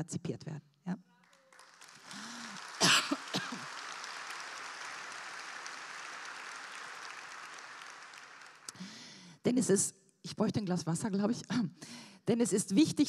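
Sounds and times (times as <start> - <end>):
audience applauding: 1.2 - 9.0.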